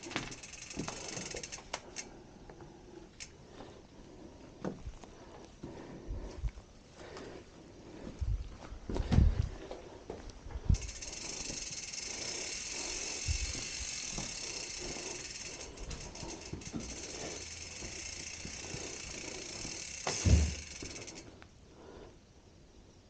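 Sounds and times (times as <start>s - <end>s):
bicycle freehub ticking: 0.0s - 3.5s, 10.7s - 21.5s.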